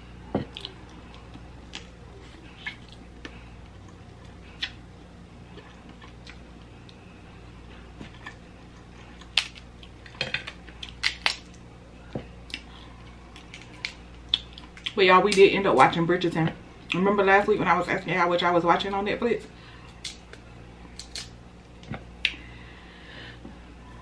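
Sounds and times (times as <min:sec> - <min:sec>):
steady low hum: 0:00.0 - 0:24.0
person chewing with mouth clicks: 0:00.5 - 0:04.8.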